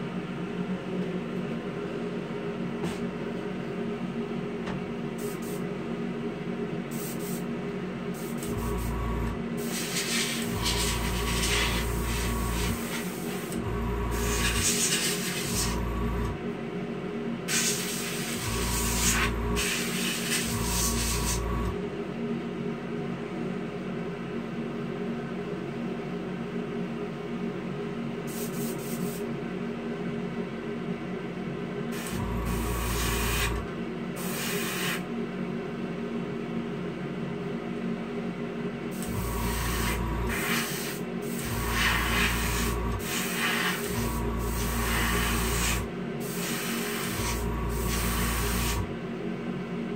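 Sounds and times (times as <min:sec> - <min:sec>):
spray booth fan hum: 0:00.0 - 0:25.6, 0:26.2 - 0:49.9
air compressor hum: 0:05.0 - 0:05.8, 0:06.9 - 0:07.5, 0:08.1 - 0:16.6, 0:17.5 - 0:21.9, 0:28.2 - 0:29.3, 0:31.9 - 0:35.2, 0:38.9 - 0:49.0
airbrush air hiss bursts: 0:05.2 - 0:05.6, 0:06.9 - 0:07.4, 0:09.6 - 0:15.8, 0:17.5 - 0:21.4, 0:28.3 - 0:29.2, 0:32.0 - 0:33.6, 0:34.2 - 0:35.0, 0:39.1 - 0:48.9.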